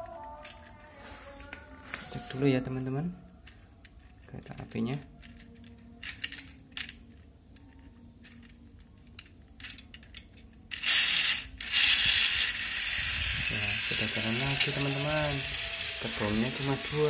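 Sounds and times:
toy locomotive hissing: 0:10.7 - 0:17.0.

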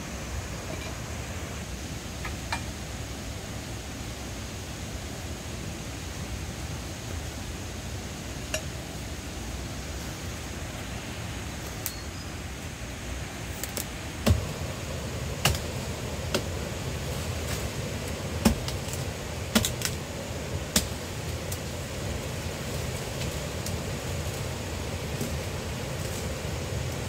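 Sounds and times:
low rushing background noise: 0:00.0 - 0:27.0.

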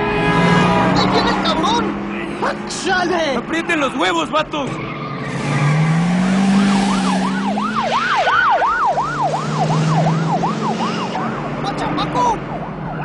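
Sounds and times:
car engine: 0:00.0 - 0:13.0
siren yelping: 0:04.7 - 0:13.0.

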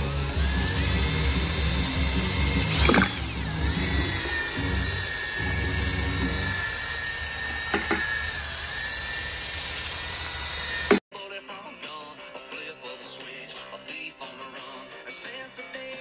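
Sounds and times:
cordless drill motor whine: 0:00.0 - 0:11.0.

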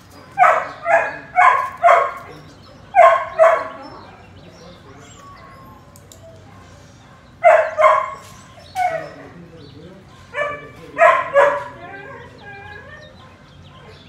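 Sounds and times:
dog barking: 0:00.4 - 0:02.3, 0:02.9 - 0:03.9, 0:07.4 - 0:09.3, 0:10.1 - 0:11.9.

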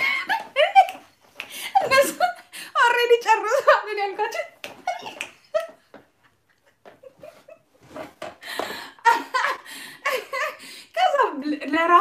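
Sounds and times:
woman laughing heartily: 0:00.0 - 0:02.5, 0:04.8 - 0:10.8.

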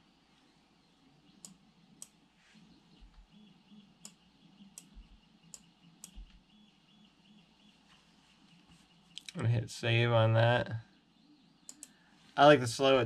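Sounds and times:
computer clicks: 0:01.4 - 0:02.2, 0:04.0 - 0:06.4, 0:11.6 - 0:12.0.

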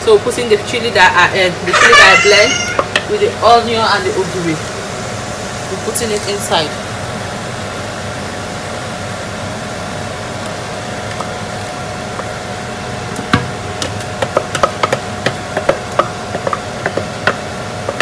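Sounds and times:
plastic jug knocking on metal pot: 0:13.3 - 0:18.0.

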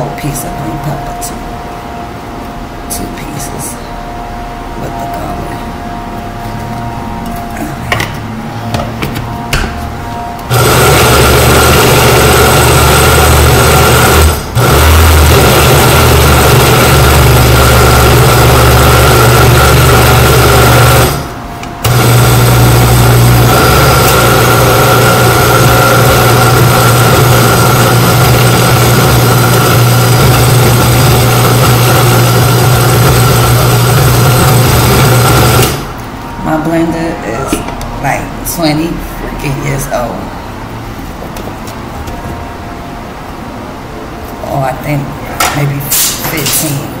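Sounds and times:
blender motor running: 0:10.4 - 0:36.0.

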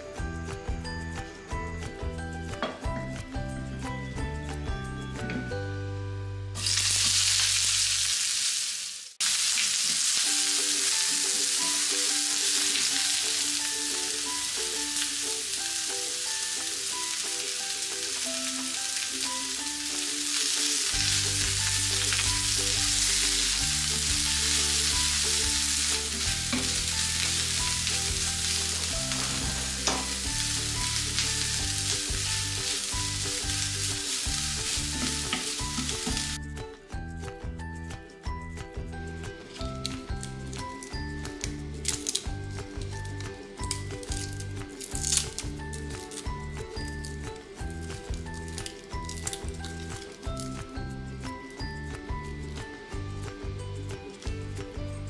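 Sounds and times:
onions sizzling in oil: 0:06.6 - 0:36.4, 0:43.6 - 0:46.2.

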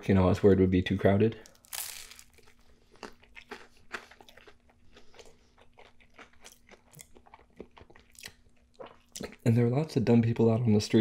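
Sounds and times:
crunchy chewing: 0:01.5 - 0:09.4.

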